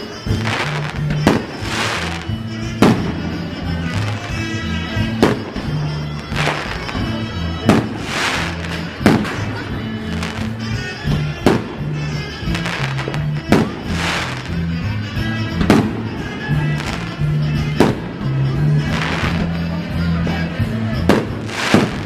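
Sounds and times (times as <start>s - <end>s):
music with steady bass line: 0.0s - 22.0s
firework shells bursting: 0.3s - 4.3s, 5.2s - 14.7s, 21.1s - 22.0s.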